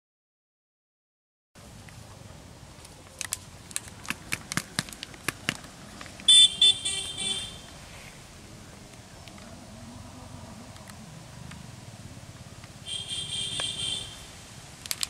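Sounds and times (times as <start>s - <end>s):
outdoor background noise: 1.6s - 15.0s
vehicle horn honking: 6.3s - 7.7s, 12.8s - 14.3s.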